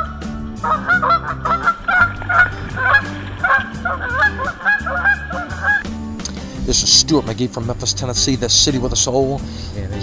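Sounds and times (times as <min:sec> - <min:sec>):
background music with bass: 0:00.0 - 0:10.0
geese honking: 0:00.6 - 0:05.8.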